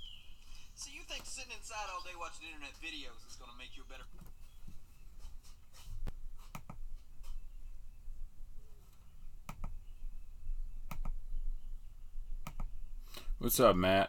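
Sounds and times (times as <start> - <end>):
faint low hum: 0.0 - 14.0
sharp clicks: 9.4 - 9.8, 10.9 - 11.2, 12.4 - 13.3.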